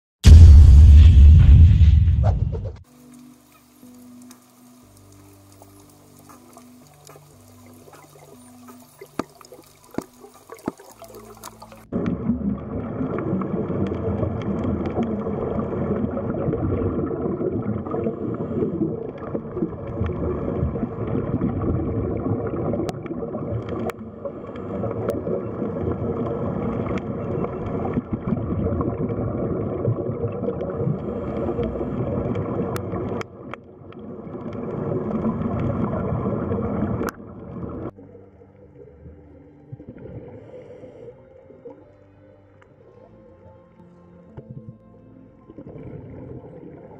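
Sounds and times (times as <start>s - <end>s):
underwater gurgling wash: 7.6s - 38.8s, 45.5s - 46.9s.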